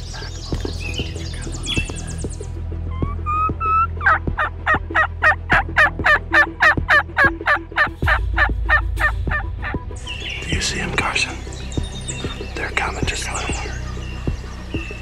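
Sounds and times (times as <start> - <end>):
turkey call yelps: 2.9 - 8.8.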